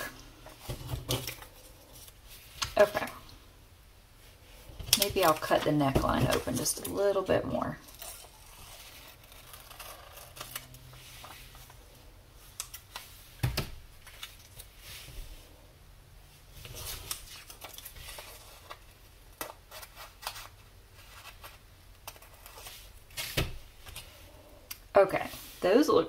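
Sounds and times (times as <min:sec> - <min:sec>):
paper rustling: 0:16.6 - 0:24.1.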